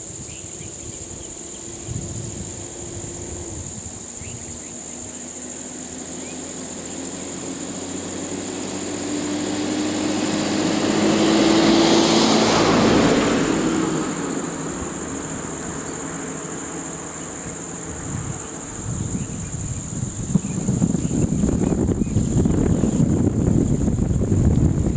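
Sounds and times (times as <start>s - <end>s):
steady high-pitched drone: 0.0s - 22.6s
truck driving past: 4.6s - 19.2s.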